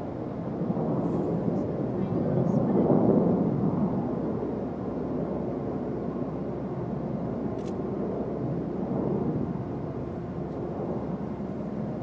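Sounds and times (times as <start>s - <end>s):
distant jet engine rumble: 0.0s - 12.0s.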